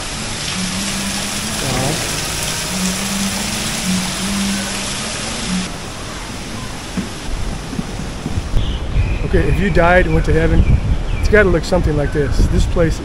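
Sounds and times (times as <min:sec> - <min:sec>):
water splashing into a pond: 0:00.0 - 0:05.4.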